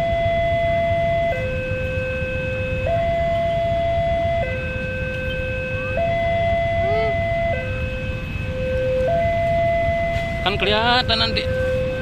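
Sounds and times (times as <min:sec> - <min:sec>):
road traffic rumble: 0:00.0 - 0:12.0
two-tone electronic warning alarm: 0:00.0 - 0:12.0.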